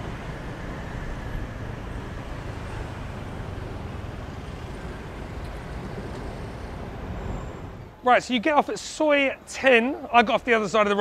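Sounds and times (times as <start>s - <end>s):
motorbike rumbling: 0.0s - 7.9s.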